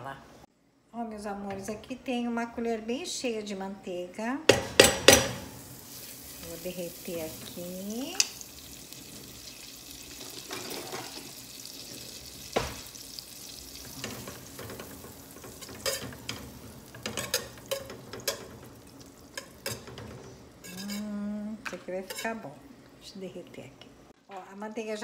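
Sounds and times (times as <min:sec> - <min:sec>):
butter sizzling in a saucepan: 0:05.2 - 0:21.1
whisk scraping a metal pan: 0:13.8 - 0:18.7, 0:19.4 - 0:21.1, 0:22.0 - 0:22.4.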